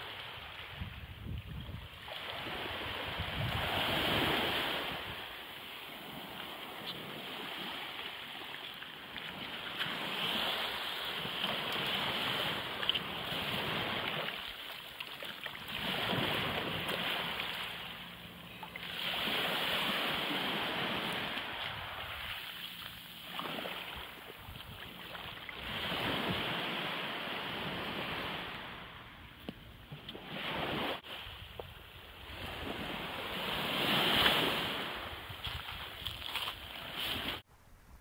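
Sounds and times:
small waves washing on pebbles: 2.0 - 18.0, 32.3 - 37.4.

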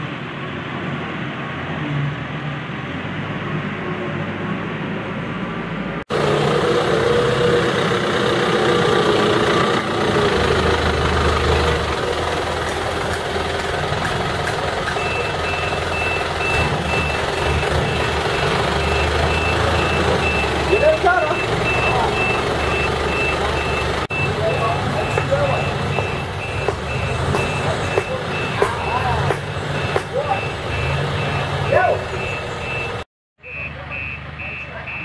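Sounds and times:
truck diesel engine running: 6.1 - 35.0
reversing alarm beeps: 14.9 - 29.2, 29.8 - 35.0.

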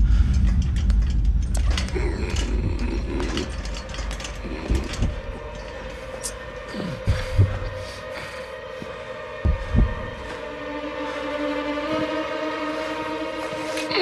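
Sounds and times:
metallic clicks and creaks: 0.0 - 7.8
deep low rumble: 0.0 - 7.9.

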